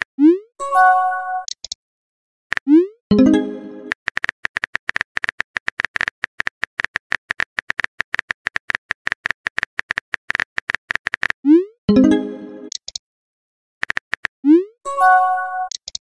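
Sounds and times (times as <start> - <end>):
phone keyboard typing clicks: 1.4 - 1.8, 3.8 - 11.4, 12.7 - 13.0, 13.8 - 14.3, 15.7 - 16.0.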